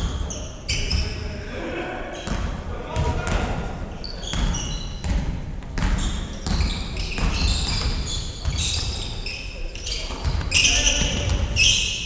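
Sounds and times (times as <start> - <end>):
sneakers squeaking on floor: 0.0 - 1.3, 2.2 - 12.0
basketball bouncing on wooden floor: 4.3 - 9.1, 10.1 - 11.6.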